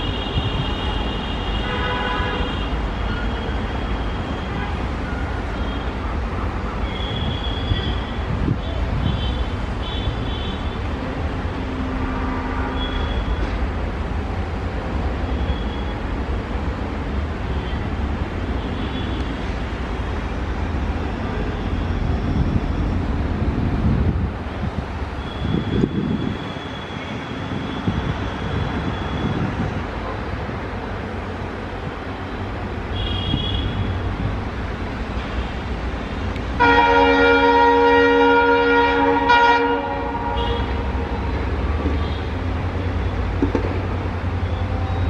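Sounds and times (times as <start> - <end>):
diesel locomotive engine rumbling: 0.0 - 45.0.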